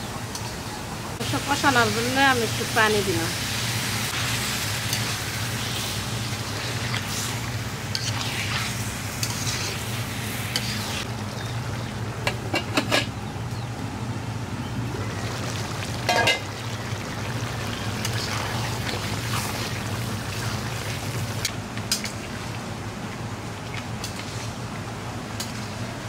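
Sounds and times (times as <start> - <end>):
steady low hum: 0.0 - 26.0
chicken sizzling in a pan: 1.2 - 11.1
spatula scraping a pan: 6.6 - 9.9.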